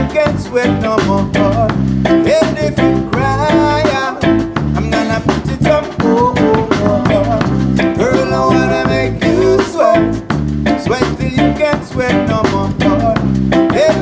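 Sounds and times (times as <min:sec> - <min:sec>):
electric guitar: 0:00.0 - 0:14.0
live reggae band playing: 0:00.0 - 0:14.0
man singing: 0:00.0 - 0:14.0.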